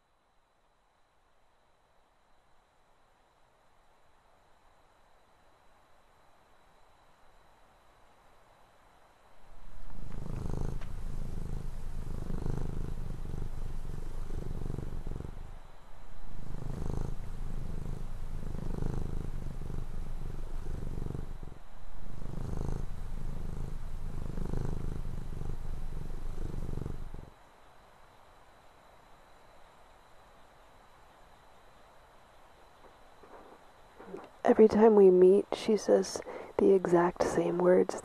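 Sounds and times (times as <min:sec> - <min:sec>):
low purring rumble: 0:09.4 - 0:27.4.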